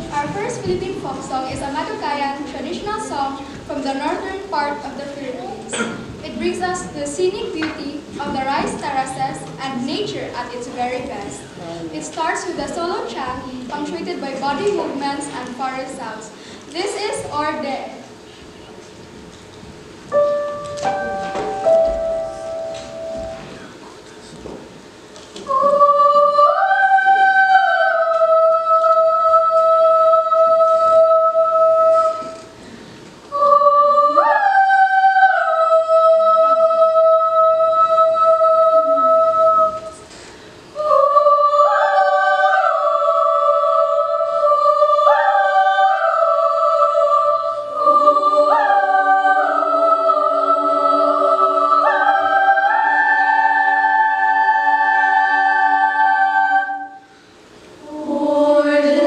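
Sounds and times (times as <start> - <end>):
lower voices singing held notes: 20.1 - 23.8, 25.4 - 59.0
solo high voice singing: 25.5 - 32.5, 33.3 - 40.1, 40.8 - 57.1, 57.8 - 59.0.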